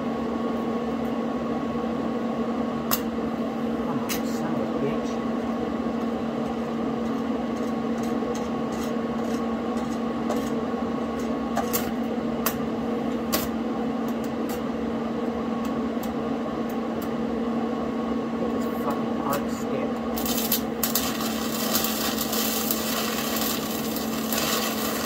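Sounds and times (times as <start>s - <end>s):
welder electrical hum: 0.0s - 25.0s
welding arc crackling and popping: 20.1s - 25.0s.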